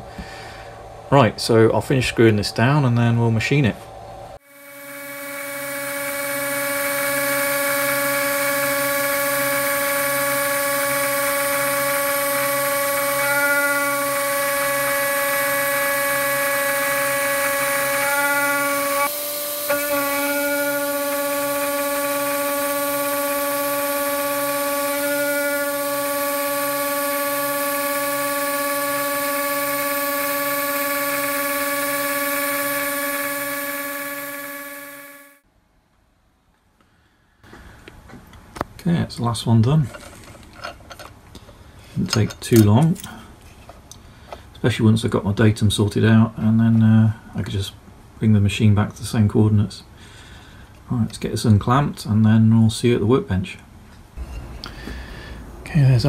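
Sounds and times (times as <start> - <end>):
milling machine cutting metal: 4.5 - 35.4.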